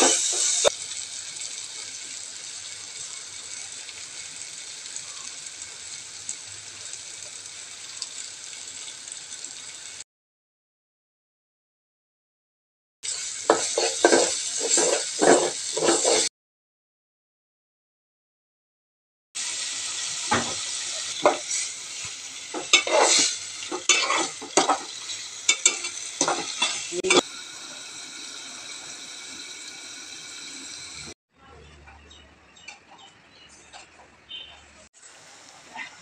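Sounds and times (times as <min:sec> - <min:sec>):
metal spatula scraping a pot: 0:00.0 - 0:00.7, 0:13.4 - 0:16.3, 0:22.5 - 0:27.2
food sizzling in a metal pot: 0:00.0 - 0:10.0, 0:13.0 - 0:16.3, 0:19.4 - 0:31.2, 0:34.3 - 0:36.0.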